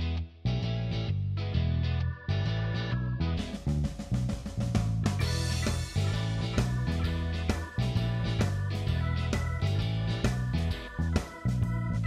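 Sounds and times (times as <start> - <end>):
guitar: 0.0 - 12.0
drum-kit beat: 3.2 - 12.0.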